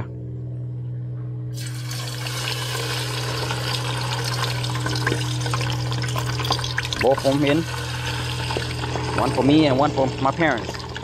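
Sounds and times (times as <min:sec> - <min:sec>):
low hum: 0:00.0 - 0:11.0
fish sizzling in hot oil: 0:01.6 - 0:09.1.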